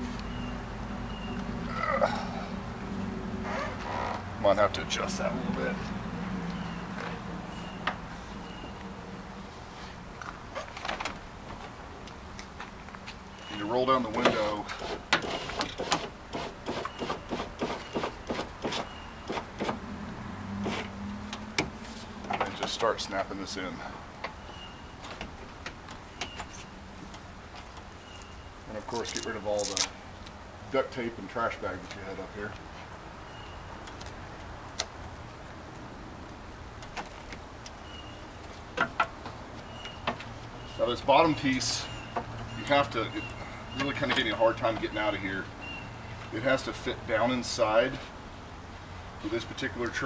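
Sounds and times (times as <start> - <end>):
rubber rubbing: 28.7 - 29.9.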